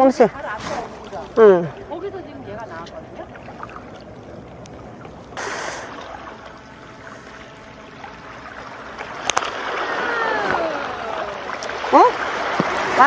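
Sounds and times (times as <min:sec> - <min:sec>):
waves washing against rocks: 0:09.2 - 0:13.0.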